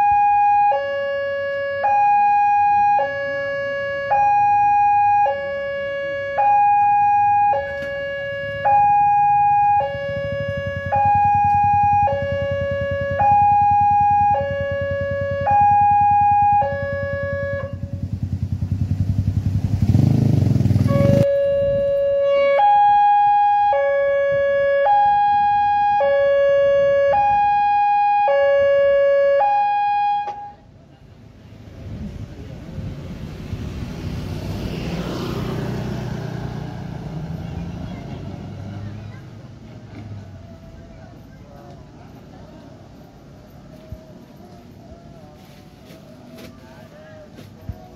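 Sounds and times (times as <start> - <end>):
two-tone level-crossing siren: 0.0 - 18.0, 20.9 - 30.7
vehicle engine rumble: 0.0 - 47.9.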